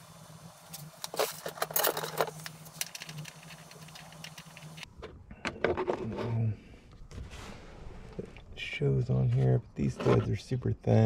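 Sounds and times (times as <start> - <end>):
hard parts clinking and rattling: 1.1 - 4.8.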